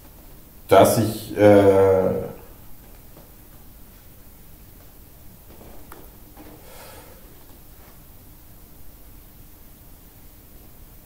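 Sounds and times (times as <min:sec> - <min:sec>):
person speaking: 0:00.7 - 0:02.5.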